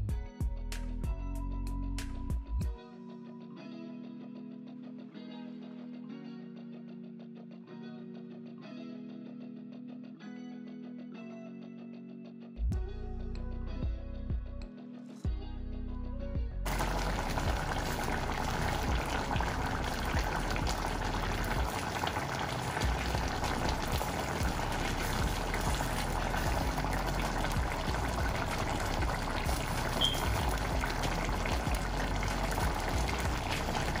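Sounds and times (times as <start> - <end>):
pot bubbling at a simmer: 16.7 - 34.0.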